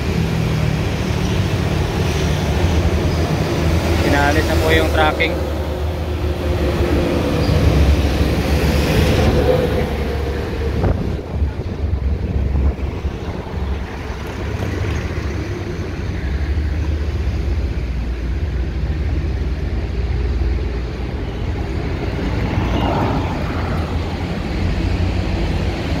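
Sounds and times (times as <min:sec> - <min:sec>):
traffic rumble: 0:00.0 - 0:26.0
wind noise on microphone: 0:06.4 - 0:15.3.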